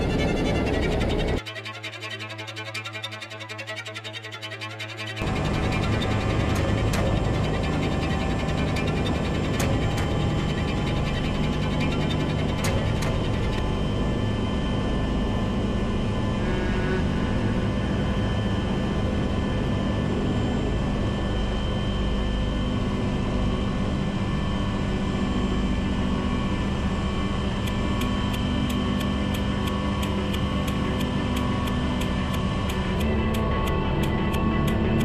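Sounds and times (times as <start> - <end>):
helicopter turbine whine: 0.0 - 35.0
rotor and engine drone: 0.0 - 35.0
sharp regular ticking: 27.7 - 35.0.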